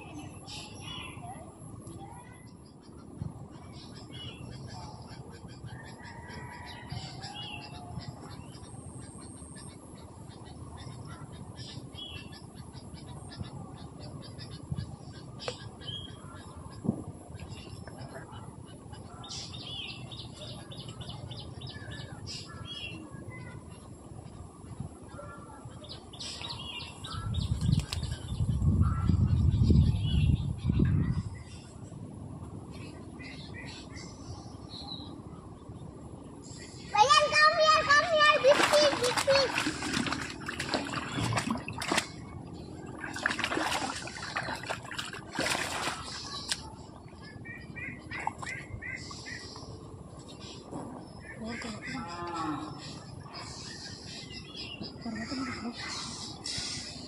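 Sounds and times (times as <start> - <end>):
small birds chirping: 0.0 - 57.0
pond water splashing and trickling: 37.0 - 47.1.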